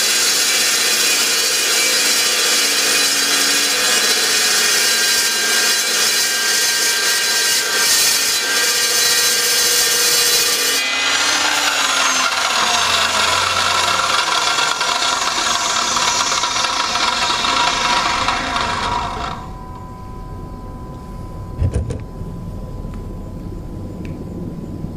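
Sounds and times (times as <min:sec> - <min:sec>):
saw blade cutting steel pipe: 0:00.0 - 0:19.5
saw running without load: 0:00.0 - 0:19.6.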